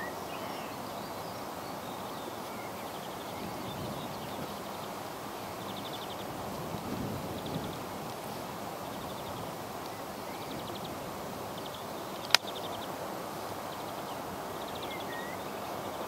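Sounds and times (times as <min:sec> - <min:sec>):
sharp click: 0:12.2 - 0:12.5.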